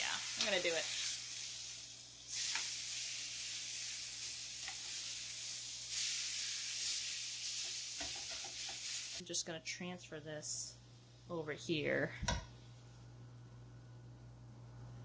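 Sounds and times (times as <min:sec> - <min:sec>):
steak sizzling on grill pan: 0:00.0 - 0:09.2.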